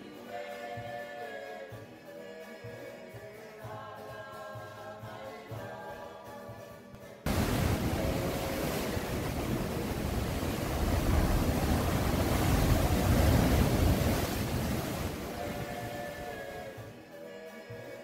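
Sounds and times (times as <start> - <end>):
surf breaking against rocks: 7.3 - 16.8.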